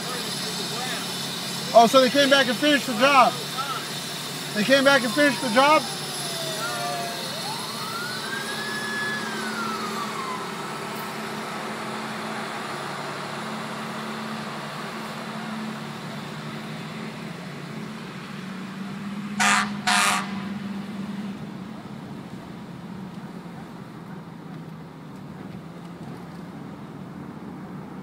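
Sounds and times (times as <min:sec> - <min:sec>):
fire engines running: 0:00.0 - 0:28.0
siren winding down: 0:01.7 - 0:14.5
vehicle horn blasts: 0:19.4 - 0:20.5.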